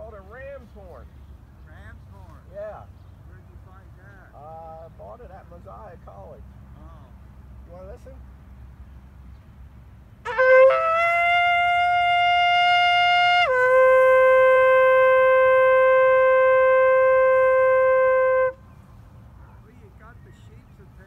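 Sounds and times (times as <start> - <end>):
ram's horn blast: 10.2 - 18.7.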